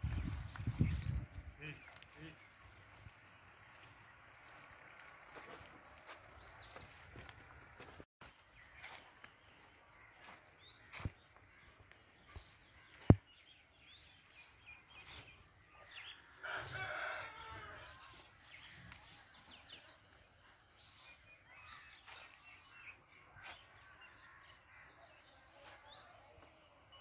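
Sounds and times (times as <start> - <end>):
small birds chirping: 0.0 - 16.4, 18.4 - 27.0
rooster crowing: 16.4 - 18.2.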